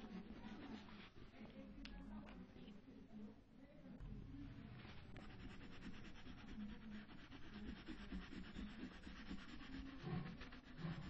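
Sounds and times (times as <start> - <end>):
crayon scribbling on paper: 0.0 - 1.2, 4.9 - 11.0.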